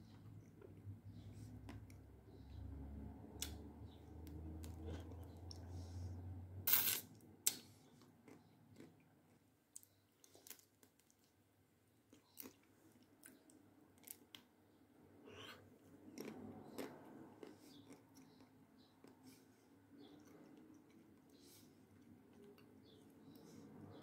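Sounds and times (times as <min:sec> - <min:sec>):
chewing: 0:08.0 - 0:11.3, 0:15.3 - 0:23.5.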